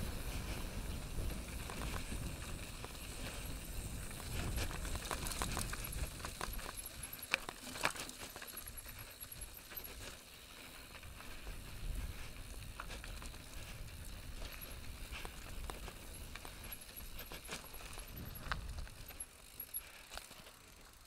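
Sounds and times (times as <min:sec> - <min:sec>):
wind rumble on microphone: 0:00.0 - 0:07.1, 0:11.0 - 0:19.2
tyres on loose dirt and stones: 0:00.0 - 0:21.0
bike rattling and knocking: 0:00.1 - 0:21.0.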